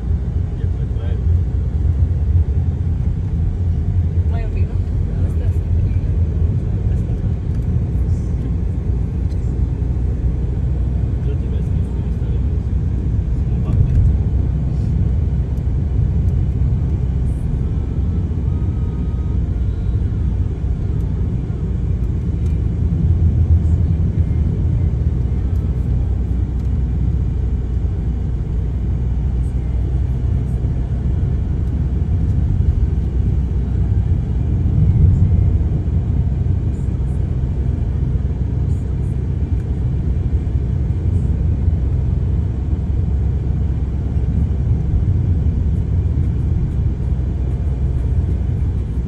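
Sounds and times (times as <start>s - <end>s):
car engine and tyre rumble: 0.0s - 49.0s.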